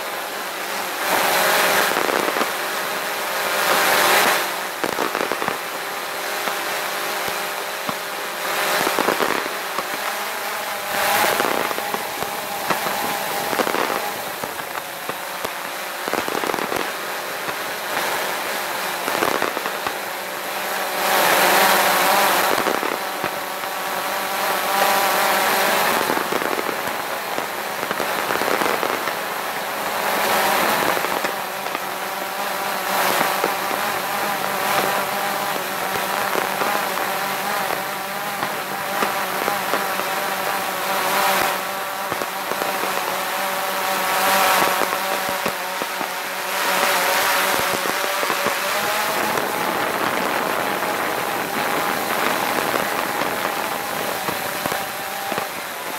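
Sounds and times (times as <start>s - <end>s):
fireworks crackling and popping: 0.0s - 55.9s
drone propellers humming: 16.5s - 55.6s.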